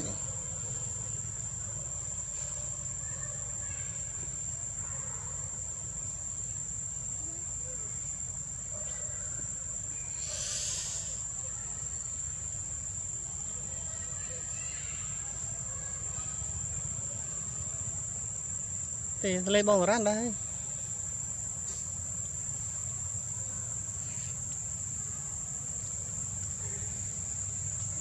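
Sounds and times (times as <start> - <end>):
forest insects droning: 0.0 - 28.0
brief hiss: 10.1 - 11.3.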